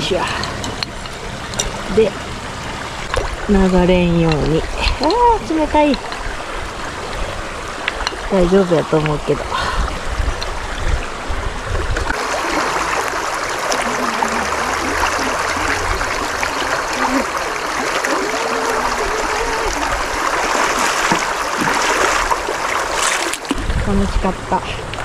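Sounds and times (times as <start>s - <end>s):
river rushing over stones: 4.2s - 25.0s
feet wading through water: 12.0s - 23.8s.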